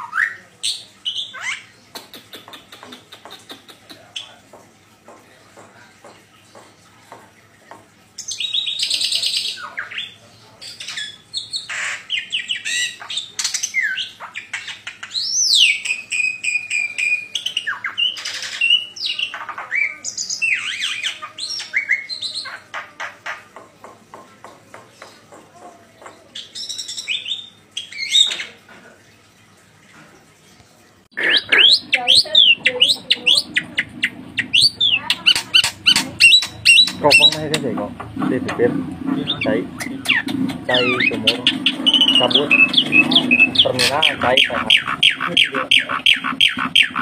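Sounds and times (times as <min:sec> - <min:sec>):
myna singing whistles and chatter: 0:31.2 - 0:37.4, 0:39.2 - 0:47.0.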